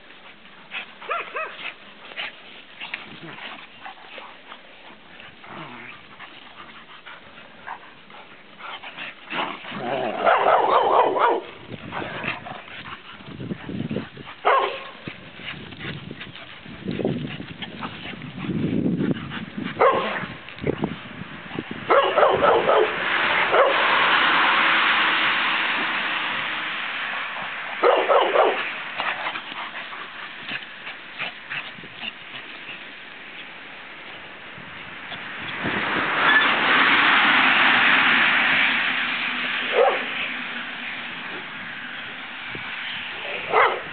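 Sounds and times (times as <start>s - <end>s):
puppies yipping and barking: 1.0s - 2.6s.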